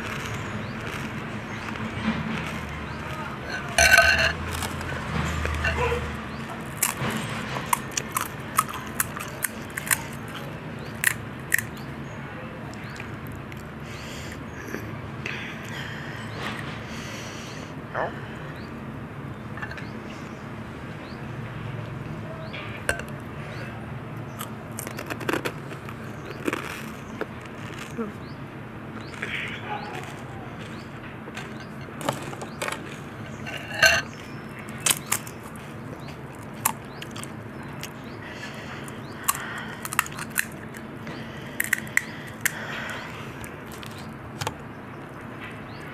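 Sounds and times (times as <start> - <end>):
crisp shell crackling: 0.0 - 5.8, 24.4 - 28.1, 34.7 - 38.0, 38.8 - 40.9, 41.6 - 44.6
spoon clinking on glass bowl: 3.7 - 4.4.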